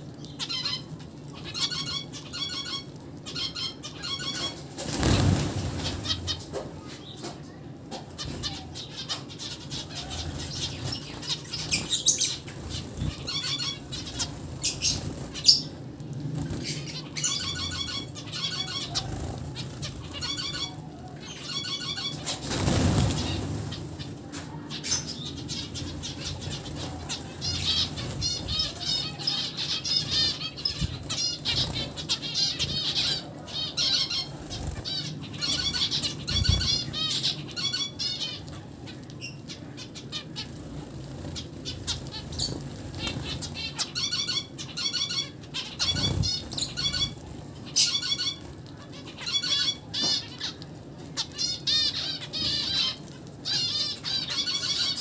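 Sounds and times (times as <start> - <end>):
wings fluttering: 0.1 - 50.6
finches calling: 8.2 - 15.8, 16.6 - 38.5, 39.2 - 50.6.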